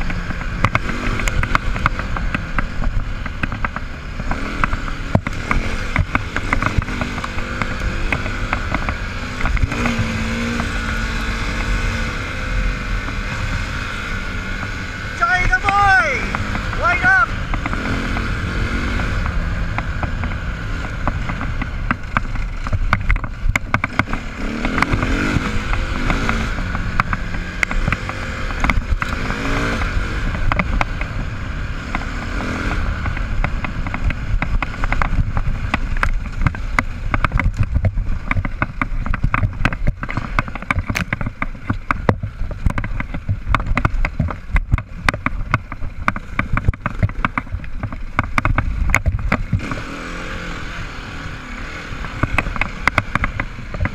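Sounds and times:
dirt bike engine revving: 0.0s - 37.2s, 48.2s - 53.9s
knocks and rattles: 19.2s - 31.3s, 31.9s - 49.8s.

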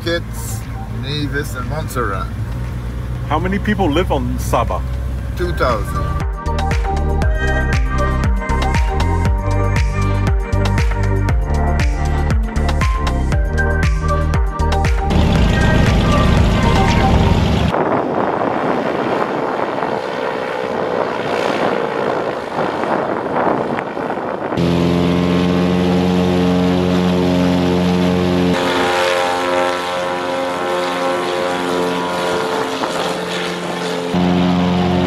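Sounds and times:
propeller plane engines droning: 0.0s - 35.0s.

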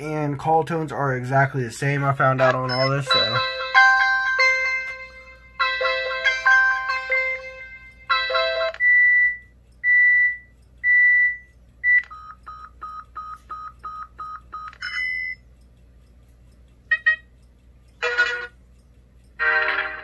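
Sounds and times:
phone alarm tones and beeps: 8.2s - 15.4s.

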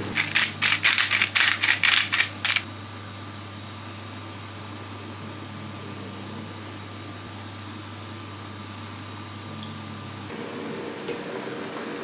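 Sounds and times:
appliance motor humming: 0.0s - 2.7s.

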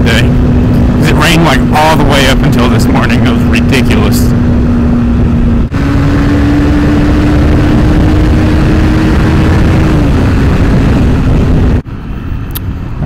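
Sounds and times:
motorcycle engine cruising: 0.0s - 13.0s
wind rush on microphone: 0.0s - 13.0s.

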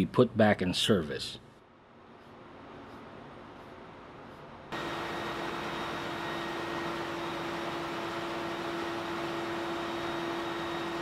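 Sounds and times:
engine room machinery roar: 4.7s - 11.0s.

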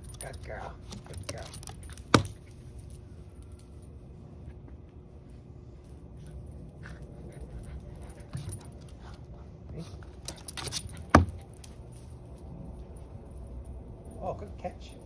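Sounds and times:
light jingling: 0.0s - 4.2s, 6.2s - 9.2s, 9.8s - 15.0s.

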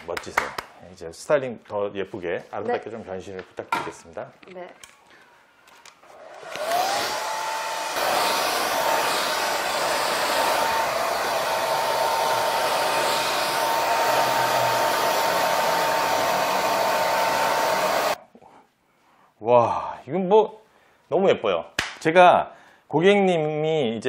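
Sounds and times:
hair dryer running: 6.0s - 18.2s.

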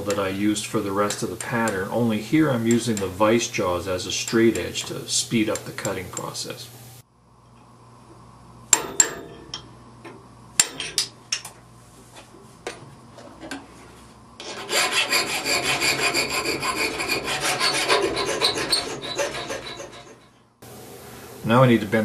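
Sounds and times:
hand file rasping on metal: 14.4s - 20.3s.

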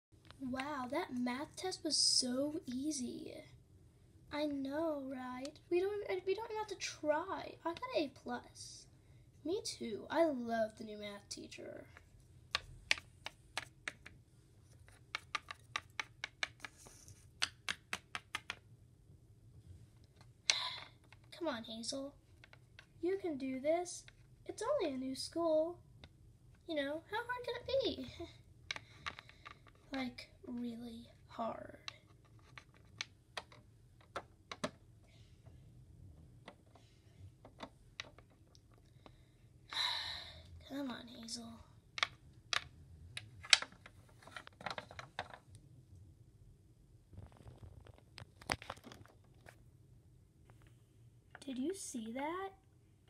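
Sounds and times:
plastic figurines clicking on tabletop: 11.9s - 14.2s, 14.9s - 18.6s, 28.7s - 29.9s, 31.8s - 34.8s, 37.4s - 38.9s, 43.4s - 45.4s
plastic toy tapping on table: 17.4s - 18.6s.

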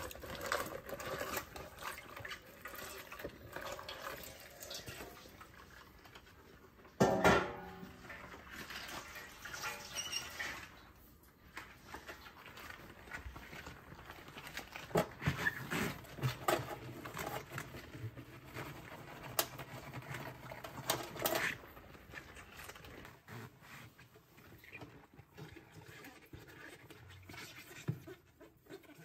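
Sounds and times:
sharp knocks: 7.0s - 7.8s.

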